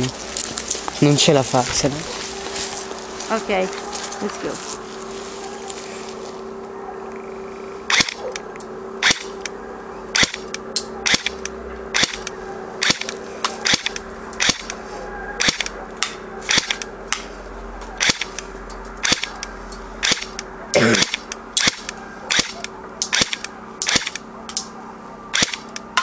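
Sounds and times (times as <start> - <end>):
airsoft pistol shots: 7.9 - 8.2, 9.0 - 9.5, 10.2 - 14.8, 15.4 - 16.9, 18.0 - 18.4, 19.0 - 19.4, 20.0 - 24.2, 25.3 - 25.8.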